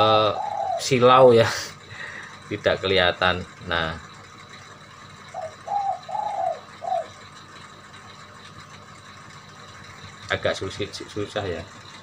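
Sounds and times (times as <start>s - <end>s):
dove cooing: 0.0s - 1.4s, 5.2s - 7.7s.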